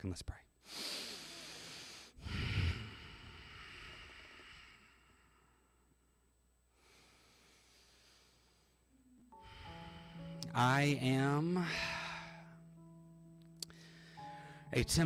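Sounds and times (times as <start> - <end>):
man breathing into microphone: 6.8 - 10.4, 13.7 - 14.7.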